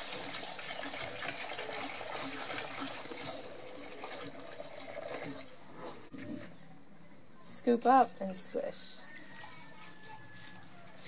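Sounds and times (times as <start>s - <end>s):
water pouring into a metal basin: 0.0s - 6.1s.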